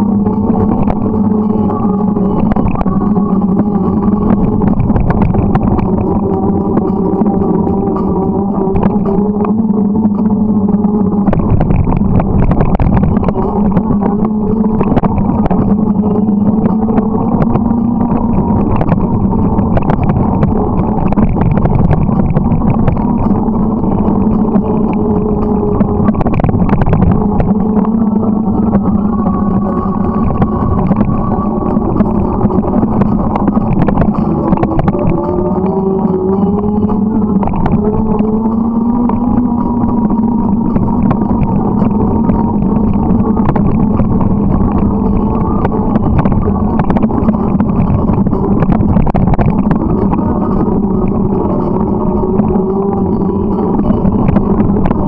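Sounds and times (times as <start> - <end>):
bike riding drone: 0.0 - 55.0
motorcycle engine cruising: 0.0 - 55.0
road noise: 0.0 - 55.0
wind on microphone: 0.0 - 55.0.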